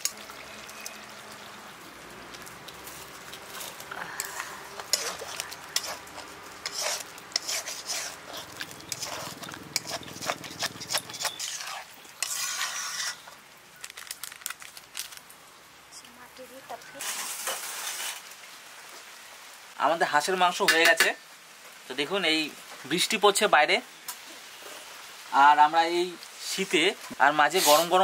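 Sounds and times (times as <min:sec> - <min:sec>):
meat sizzling: 0:00.0 - 0:15.5, 0:16.4 - 0:28.0
wooden spatula scraping metal pan: 0:02.9 - 0:13.4, 0:17.0 - 0:18.2, 0:27.5 - 0:28.0.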